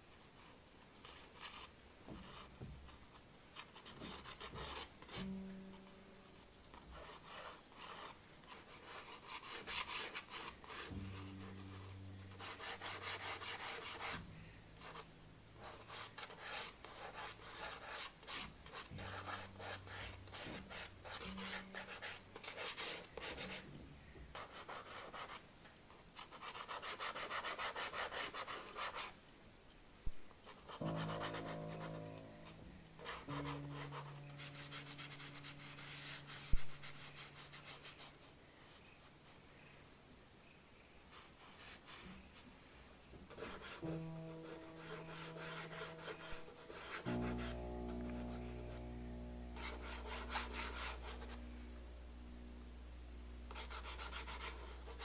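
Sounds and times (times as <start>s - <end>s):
pastel scratching on paper: 3.6s - 5.9s, 6.7s - 14.2s, 14.8s - 23.6s, 24.3s - 25.4s, 26.2s - 29.2s, 30.5s - 39.4s, 41.1s - 42.5s, 43.3s - 51.5s, 53.5s - 55.0s.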